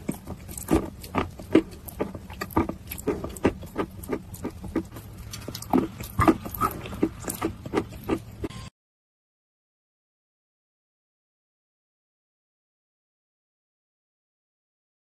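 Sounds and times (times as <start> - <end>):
wet mouth chewing clicks: 0.0 - 8.6.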